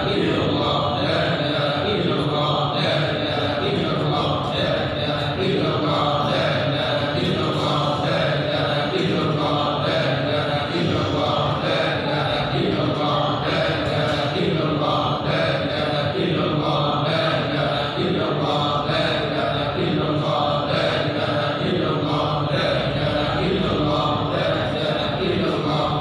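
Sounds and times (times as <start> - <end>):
men chanting together: 0.0 - 26.0.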